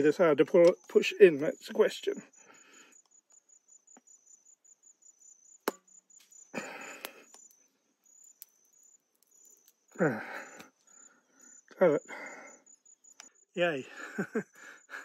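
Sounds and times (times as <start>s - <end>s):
insects chirping: 0.0s - 15.0s.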